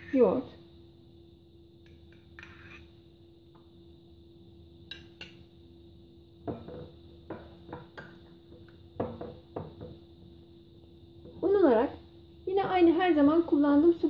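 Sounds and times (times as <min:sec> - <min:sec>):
faint steady hum: 0:00.0 - 0:14.0
spatula stirring dough: 0:01.8 - 0:03.0.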